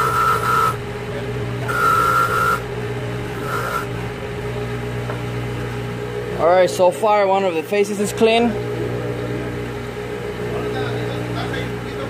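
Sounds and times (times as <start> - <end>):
high-pitched metal grinding: 0.0 - 4.7
bench grinder motor humming: 0.0 - 12.0.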